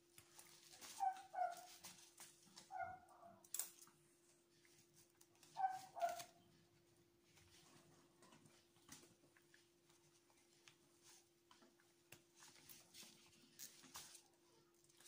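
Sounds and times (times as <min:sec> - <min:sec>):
dog whining: 0:00.8 - 0:01.7, 0:05.5 - 0:06.4.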